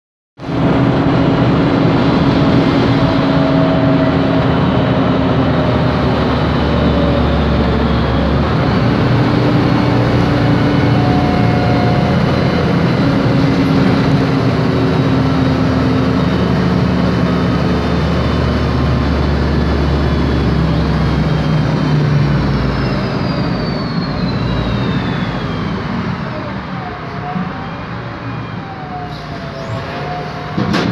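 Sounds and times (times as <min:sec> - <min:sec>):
high whine falling in pitch: 0:00.4 - 0:30.6
bus engine running: 0:00.4 - 0:30.9
differential whine: 0:00.4 - 0:30.9.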